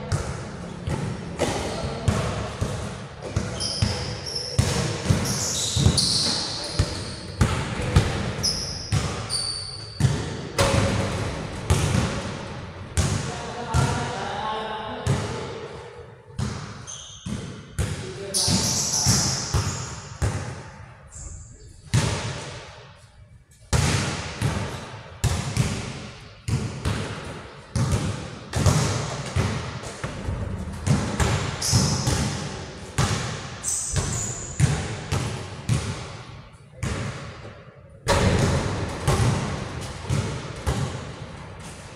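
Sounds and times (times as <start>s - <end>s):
basketball bouncing on court floor: 0.0s - 12.4s, 13.0s - 14.0s, 23.7s - 41.8s
shoe squeaks: 3.4s - 7.4s, 8.4s - 10.0s, 16.8s - 17.4s, 18.2s - 19.9s, 21.1s - 21.8s, 31.6s - 32.1s, 33.6s - 34.6s.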